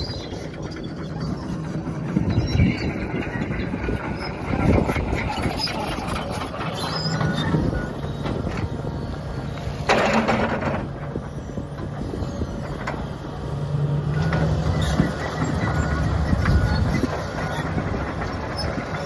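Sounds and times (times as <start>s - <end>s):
construction machinery running: 0.0s - 19.0s
creaks and clanks: 9.6s - 13.3s.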